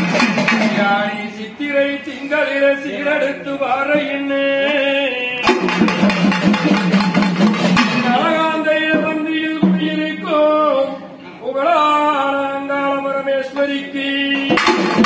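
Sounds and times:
drums beating fast: 0:00.0 - 0:01.2, 0:05.4 - 0:10.4, 0:14.5 - 0:15.0
man singing long notes: 0:07.8 - 0:14.7.

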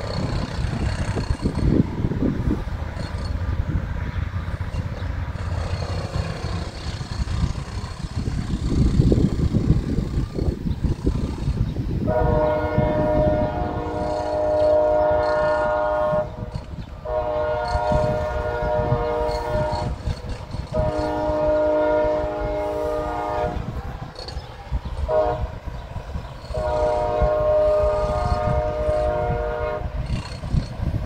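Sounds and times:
locomotive air horn blasts: 0:05.4 - 0:07.6, 0:12.0 - 0:23.8, 0:25.0 - 0:25.8, 0:26.4 - 0:30.4.

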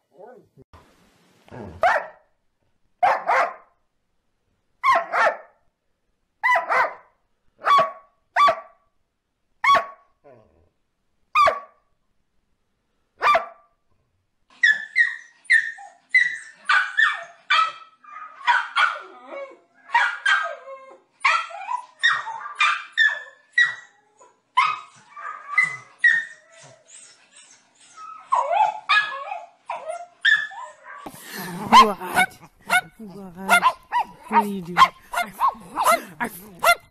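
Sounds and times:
dog bark: 0:01.8 - 0:02.2, 0:03.0 - 0:03.7, 0:04.8 - 0:05.6, 0:06.4 - 0:08.8, 0:09.6 - 0:10.1, 0:11.4 - 0:11.8, 0:13.2 - 0:13.7, 0:16.7 - 0:19.1, 0:19.9 - 0:20.6, 0:21.2 - 0:23.7, 0:31.0 - 0:36.9
small dog barking rapidly: 0:01.8 - 0:02.2, 0:03.0 - 0:03.6, 0:04.8 - 0:05.5, 0:06.4 - 0:07.0, 0:07.6 - 0:08.7, 0:09.6 - 0:10.0, 0:11.4 - 0:11.7, 0:13.2 - 0:13.5, 0:31.6 - 0:36.9.

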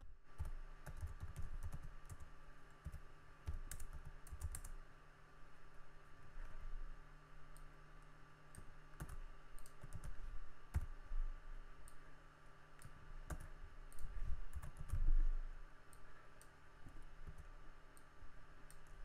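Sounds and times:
faint steady hum: 0:00.0 - 0:19.0
typing on computer keyboard: 0:00.3 - 0:04.8, 0:08.6 - 0:10.9, 0:12.8 - 0:15.0.

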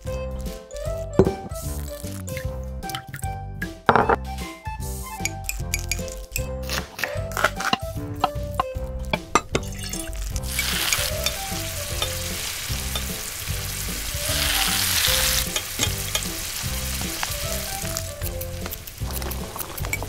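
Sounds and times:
spoon stirring in pan: 0:07.3 - 0:20.0
food sizzling in oil: 0:09.6 - 0:20.0.

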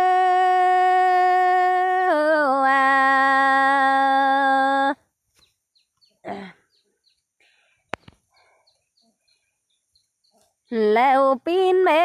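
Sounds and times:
faint bird chirps: 0:05.3 - 0:11.4.

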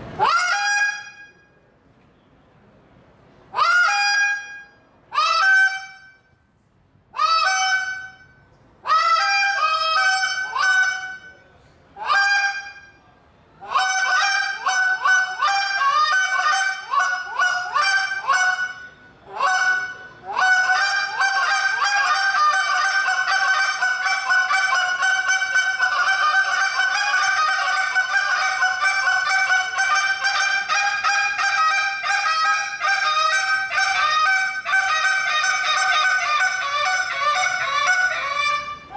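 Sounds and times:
goose call honking: 0:13.6 - 0:38.9.

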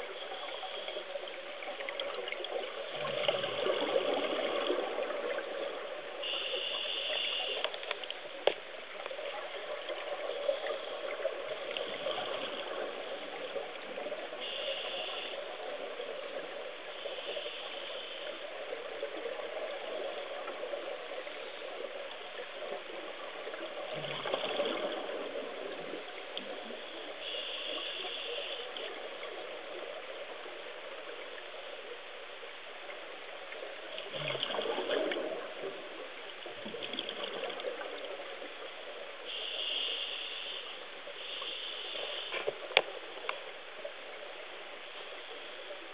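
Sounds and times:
underwater rushing water hiss: 0:00.0 - 0:45.9.

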